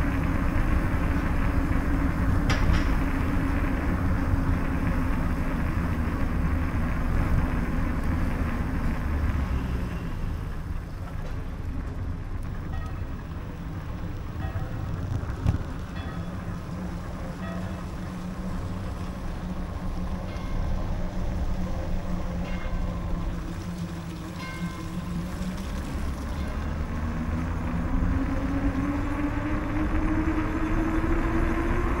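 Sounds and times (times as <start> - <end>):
bicycle rolling on pavement: 0.0 - 32.0
vehicle motor rising in pitch: 13.1 - 32.0.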